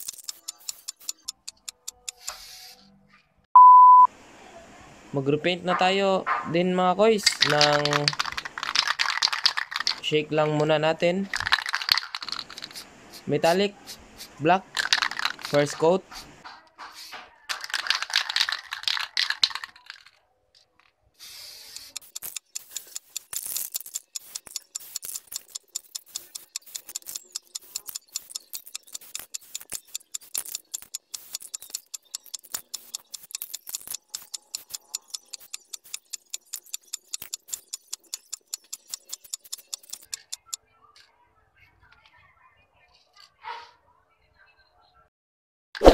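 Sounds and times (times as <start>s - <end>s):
rapid sharp clicks: 0.0s - 2.4s, 7.2s - 10.1s, 11.3s - 13.6s, 14.7s - 16.5s, 17.5s - 20.1s, 21.6s - 40.6s
spray can hissing: 0.0s - 2.8s, 7.2s - 10.0s, 11.3s - 19.7s, 21.2s - 40.4s.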